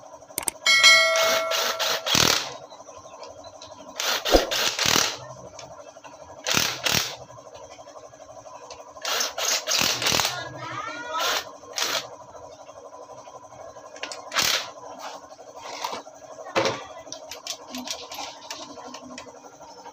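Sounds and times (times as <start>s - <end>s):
power tool running: 1.2s - 2.6s, 4.0s - 5.2s, 9.0s - 10.3s, 11.2s - 12.0s.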